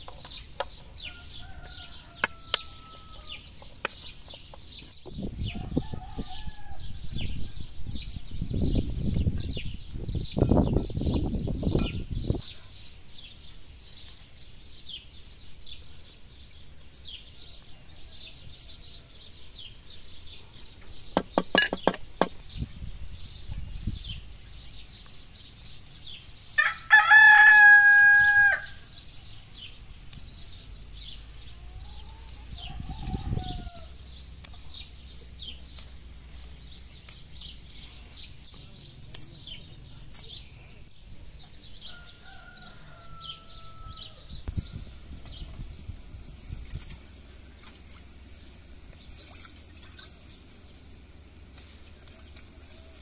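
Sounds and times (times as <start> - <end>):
rooster crowing: 1.1 - 3.4, 5.5 - 7.3, 26.6 - 28.8, 31.7 - 34.0, 41.8 - 44.3.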